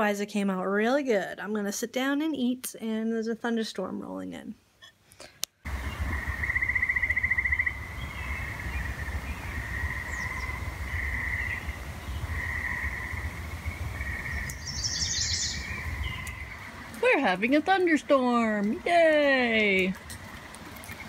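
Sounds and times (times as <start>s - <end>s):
birds trilling and chirping: 5.7s - 18.4s
steady low rumble: 5.7s - 21.0s.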